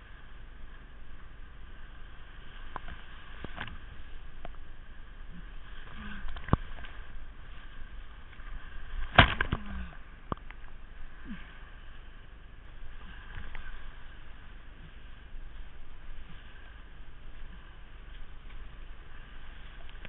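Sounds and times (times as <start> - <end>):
paddle knocks and splashes: 8.3 - 10.8.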